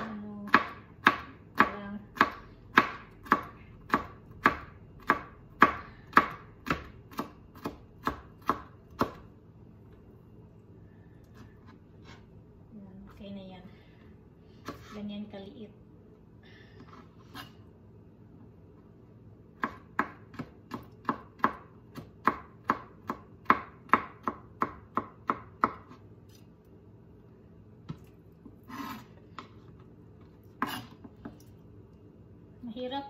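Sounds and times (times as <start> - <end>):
knife chopping on cutting board: 0.4 - 9.2, 19.6 - 26.0, 30.6 - 31.4
knife scraping board: 11.4 - 12.3, 14.6 - 15.1, 16.8 - 17.6, 28.5 - 29.5, 30.6 - 31.1.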